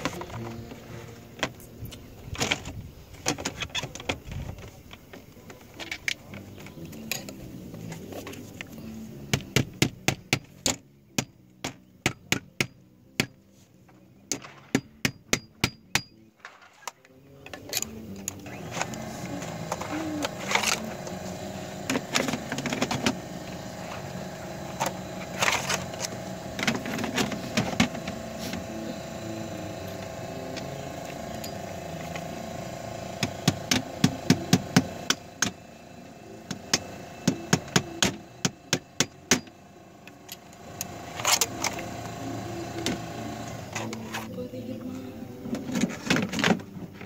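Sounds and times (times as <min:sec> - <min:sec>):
hammer striking nails into wood: 0:14.3 - 0:16.2
steady hum: 0:17.4 - 0:47.0.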